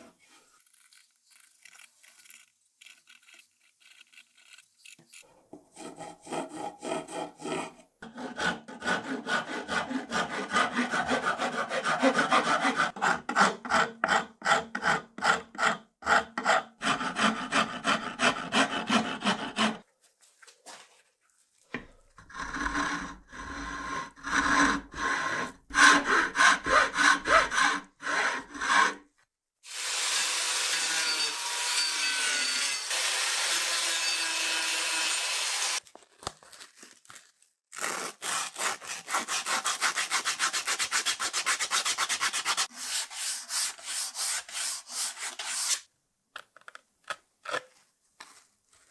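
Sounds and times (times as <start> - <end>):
hand rasp filing wood: 5.7 - 19.8, 22.3 - 29.1, 38.9 - 45.9.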